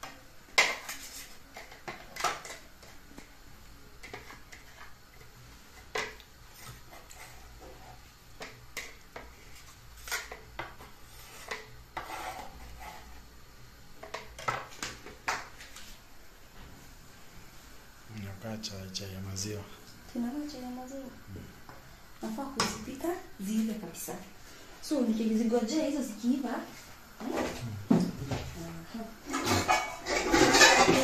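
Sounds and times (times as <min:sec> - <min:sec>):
utensils clattering: 0:29.3 - 0:31.0.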